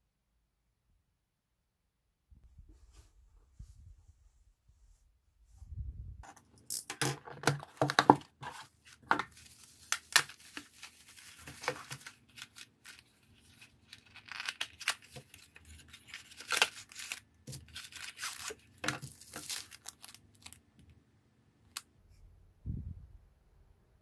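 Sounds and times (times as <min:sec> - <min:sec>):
bubble wrap crinkling and tearing: 0:07.4 - 0:20.6.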